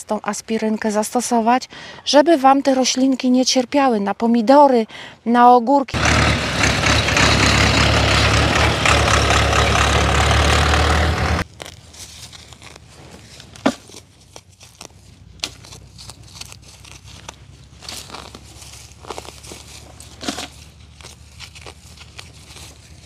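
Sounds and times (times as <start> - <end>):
tractor engine rumbling: 5.9 - 23.0
hands rustling among plants: 11.4 - 23.0.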